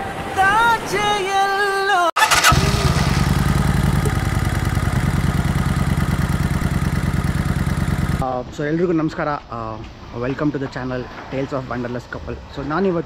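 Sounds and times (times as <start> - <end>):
motorcycle engine idling: 2.2 - 8.2.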